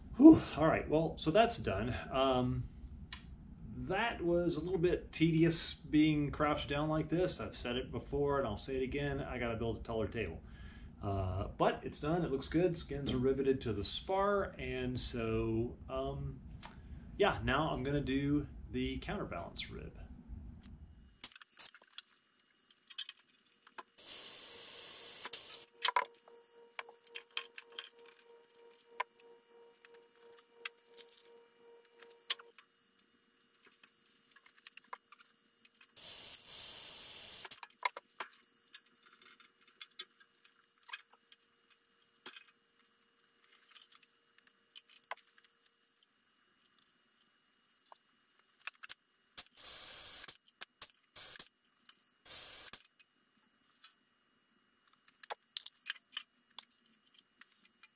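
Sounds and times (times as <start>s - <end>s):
faint steady hum: 0.0s - 57.9s
compressed air hissing: 24.0s - 25.7s, 36.0s - 37.6s, 52.3s - 52.8s.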